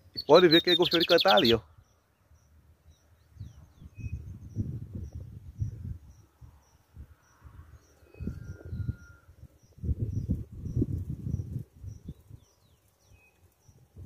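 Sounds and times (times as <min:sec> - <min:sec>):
faint high chirp: 0:00.1 - 0:14.0
low rumbling on microphone: 0:03.4 - 0:12.5.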